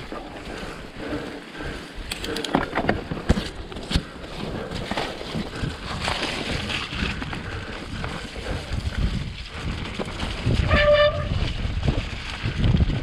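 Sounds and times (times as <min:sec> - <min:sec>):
bike tyres rumbling on trail: 0:00.0 - 0:13.0
bike knocks and rattles: 0:02.0 - 0:13.0
wind on microphone: 0:05.4 - 0:13.0
brief horn-like tone: 0:10.7 - 0:11.4.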